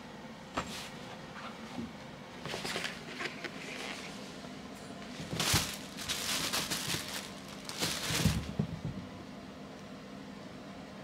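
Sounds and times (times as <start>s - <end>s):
nylon fabric rustling and crinkling: 5.1s - 8.6s.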